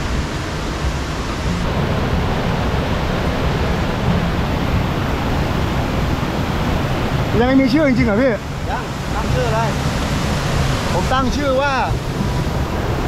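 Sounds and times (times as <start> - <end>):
waterfall and stream rushing: 0.0 - 13.0.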